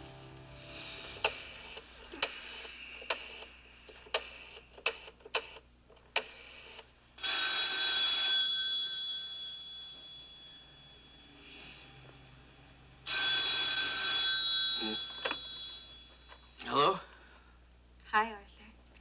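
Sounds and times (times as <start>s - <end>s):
telephone bell ringing: 7.2s - 11.4s, 13.1s - 16.6s.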